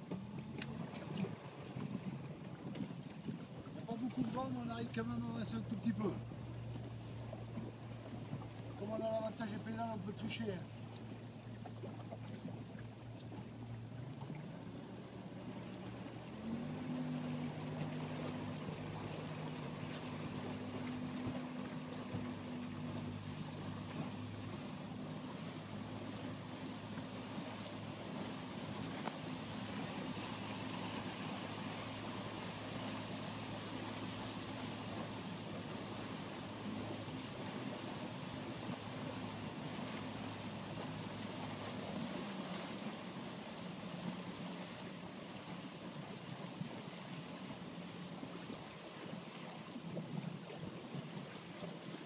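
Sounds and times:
low engine hum: 0.0 - 52.0
water noise: 0.0 - 52.0
wind: 0.0 - 52.0
click: 29.0 - 29.2.

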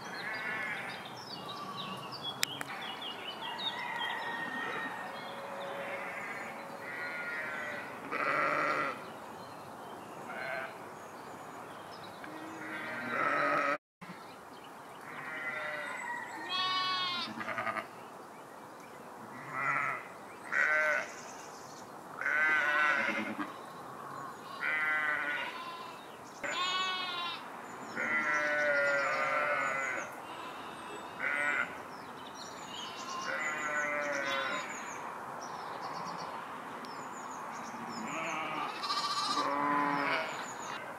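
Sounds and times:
sheep bleating: 4.6 - 9.0, 12.3 - 13.8, 15.2 - 17.9, 19.4 - 21.1, 22.2 - 23.5, 24.4 - 27.4, 28.0 - 31.7, 32.7 - 34.7, 37.9 - 40.4.

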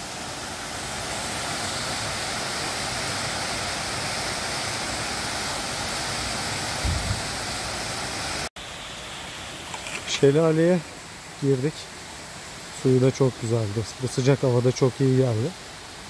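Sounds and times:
small waterfall splashing into pool: 0.0 - 11.2.

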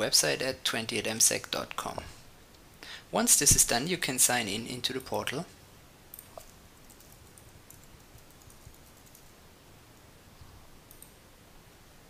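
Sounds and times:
faint keyboard typing: 6.1 - 10.1, 10.8 - 11.2.

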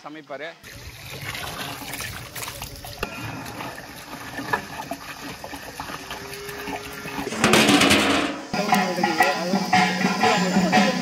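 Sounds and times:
water pouring into a pot: 0.6 - 7.3.

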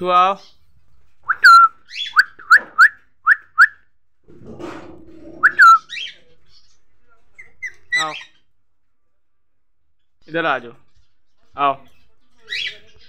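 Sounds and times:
low scratchy sound: 4.2 - 6.9
parakeet shrill whistled calls: 5.4 - 6.2.

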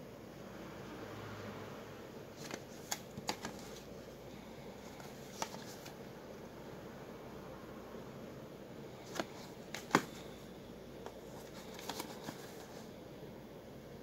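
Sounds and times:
cardboard packs handled: 2.4 - 3.9, 4.8 - 6.0, 9.0 - 10.4, 11.1 - 12.9.

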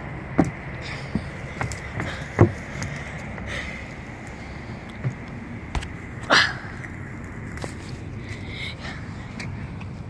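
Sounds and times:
dull thumps: 0.3 - 2.7, 5.0 - 6.1.

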